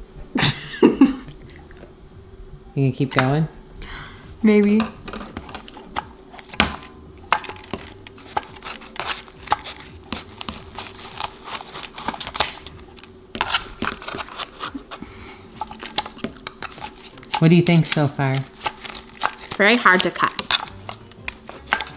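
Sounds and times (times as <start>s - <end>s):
faint steady hum: 0.0s - 21.9s
toy being cut snips and crinkles: 5.4s - 15.0s, 15.6s - 21.9s.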